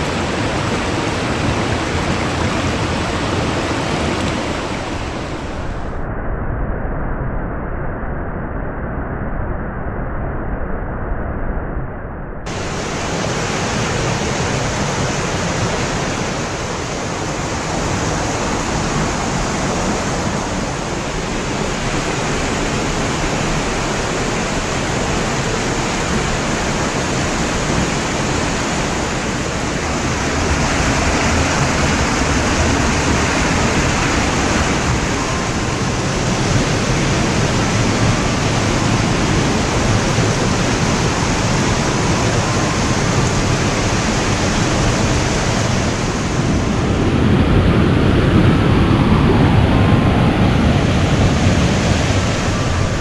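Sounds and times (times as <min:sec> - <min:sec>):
stream water rushing: 0:00.0 - 0:05.4, 0:12.5 - 0:46.6, 0:50.6 - 0:53.0.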